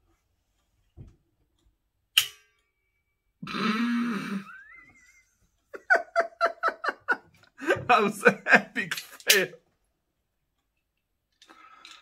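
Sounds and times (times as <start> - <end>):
man laughing: 3.4 - 9.6.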